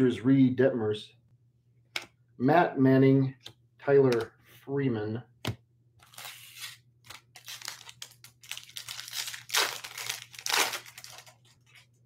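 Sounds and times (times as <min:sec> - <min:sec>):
foil wrapper crinkling and tearing: 0:06.0 - 0:11.9.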